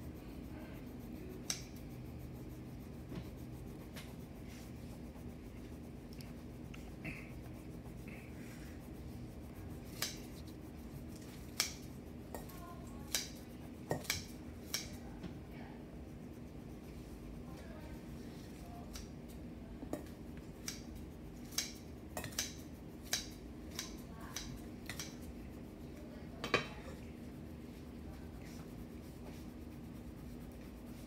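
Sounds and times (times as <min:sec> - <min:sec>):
crayon rubbing on paper: 0:00.0 - 0:18.8, 0:27.8 - 0:31.0.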